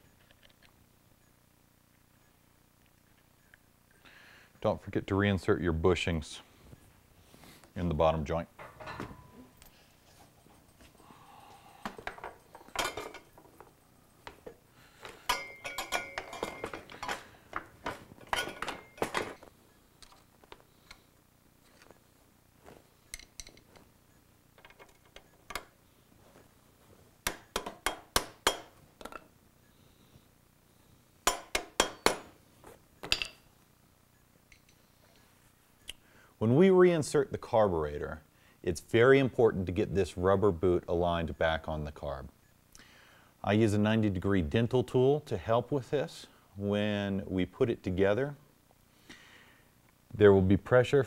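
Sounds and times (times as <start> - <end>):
metal clinks and taps of tools: 11.8 - 20.2, 23.1 - 23.8, 34.5 - 34.8.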